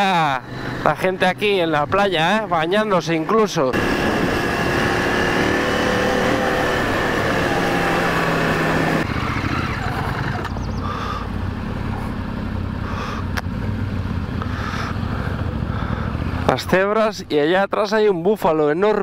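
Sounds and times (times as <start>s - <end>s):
motorcycle engine running: 3.8s - 16.6s.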